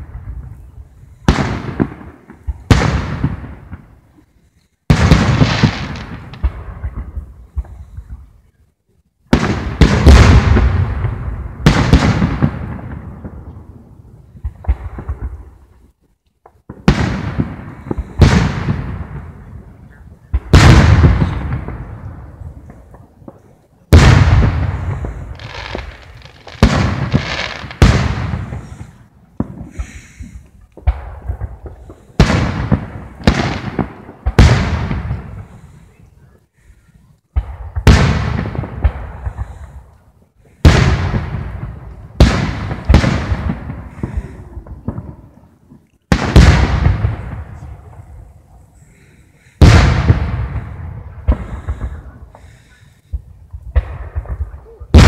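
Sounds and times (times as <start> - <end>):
fireworks booming with echo: 0.0 - 8.6, 9.2 - 55.0.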